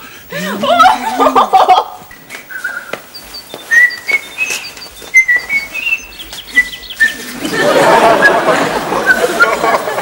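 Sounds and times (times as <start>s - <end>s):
person whistling a tune: 3.7s - 7.3s.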